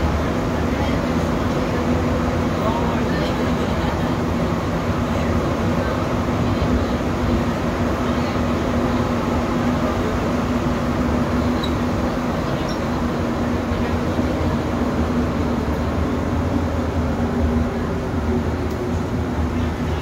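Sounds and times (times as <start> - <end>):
metro train rumbling in tunnel: 0.0 - 20.0.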